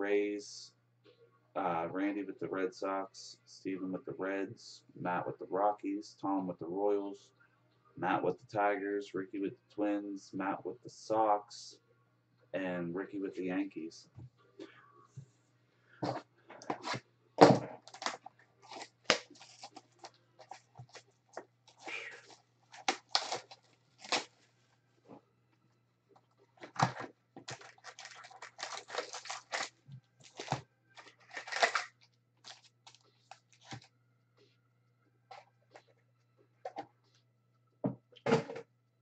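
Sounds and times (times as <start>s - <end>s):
shrink wrap crinkling: 17.8s - 24.7s, 26.6s - 33.9s.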